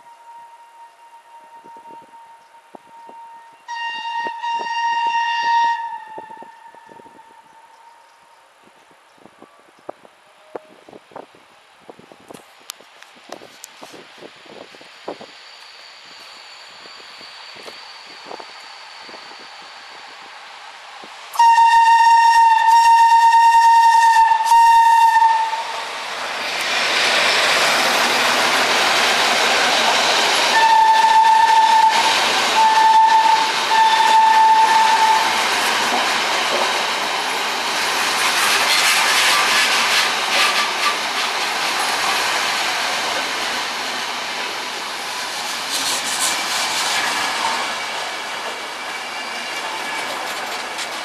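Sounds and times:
locomotive horn blasts: 0.0s - 8.1s, 21.4s - 25.7s, 30.5s - 35.4s
train coaches clickety-clack: 21.0s - 51.0s.

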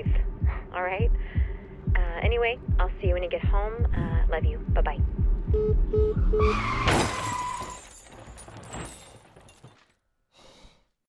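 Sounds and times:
car crash impact: 6.6s - 9.8s
breaking glass and debris: 6.8s - 10.0s.

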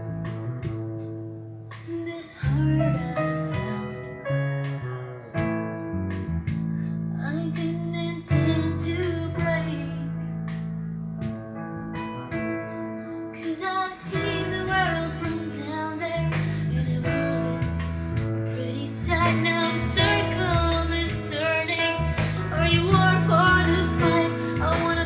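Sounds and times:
song over loudspeakers: 13.4s - 25.0s.

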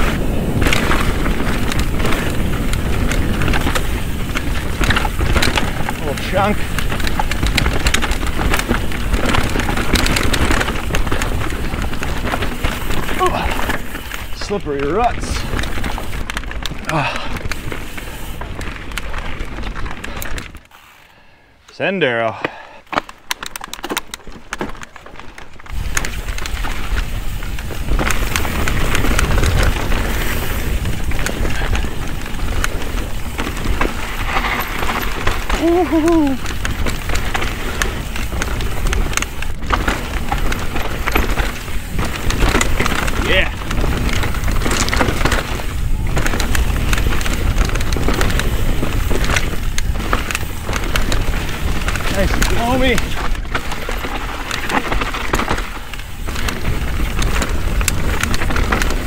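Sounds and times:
wind rumble on microphone: 0.0s - 20.6s, 25.6s - 59.0s
bike rattling: 0.0s - 59.0s
bike tyres crackling over dirt: 0.0s - 59.0s.

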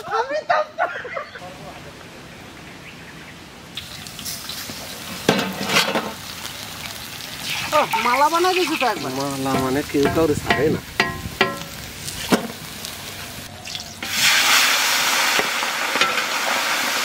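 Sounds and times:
hot oil sizzling in a wok: 3.7s - 17.0s.

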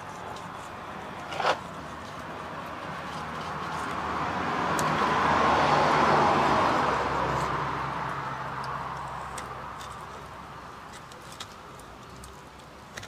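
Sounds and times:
motor vehicle passing by: 1.0s - 10.3s.

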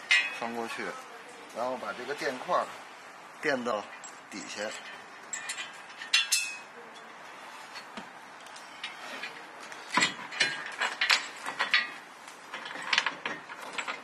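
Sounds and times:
metal bracket clicking and knocking: 0.0s - 0.5s, 3.9s - 6.6s, 9.9s - 14.0s.

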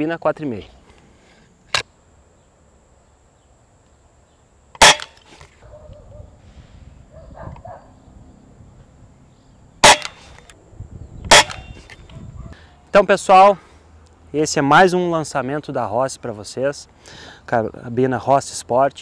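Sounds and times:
air rifle shots: 4.8s - 5.3s, 9.8s - 10.5s, 11.3s - 11.9s.

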